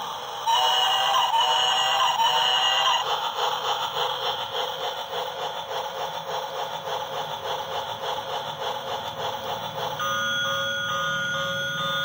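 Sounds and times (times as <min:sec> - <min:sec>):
toy motor and gears clattering: 0:00.6 - 0:12.0
toy beeping electronic tune: 0:10.0 - 0:12.0.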